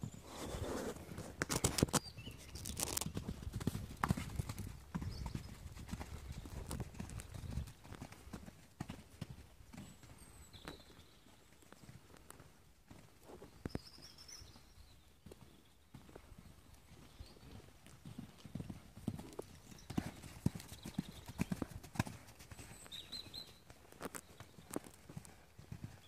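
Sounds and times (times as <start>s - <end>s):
horse hoofbeats on sand: 0.0s - 14.5s, 15.2s - 26.0s.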